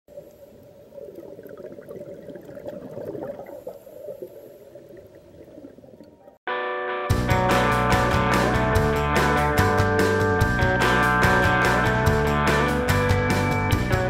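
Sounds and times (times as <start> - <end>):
water bubbling and gurgling: 0.1 - 6.4.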